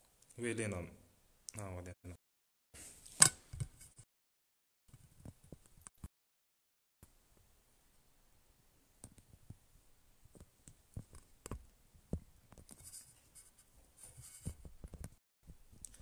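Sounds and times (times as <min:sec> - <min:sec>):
smartphone being handled: 0:10.3 - 0:15.2.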